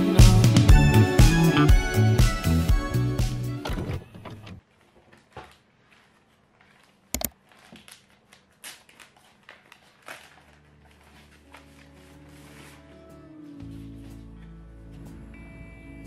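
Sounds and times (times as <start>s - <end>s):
plastic mailer crinkling and tearing: 5.2s - 13.0s.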